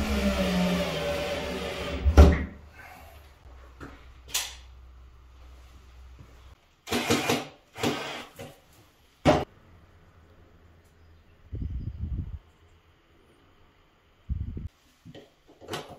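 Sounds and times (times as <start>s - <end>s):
drill boring into tiled wall: 0.0s - 2.0s, 6.9s - 8.4s.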